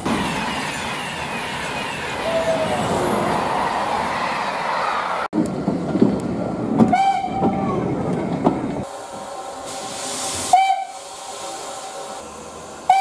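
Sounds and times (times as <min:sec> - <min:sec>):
trains passing at speed: 0:00.0 - 0:13.0
steam locomotive whistle: 0:06.9 - 0:07.6, 0:10.4 - 0:11.0
two-tone train horn: 0:10.5 - 0:11.0.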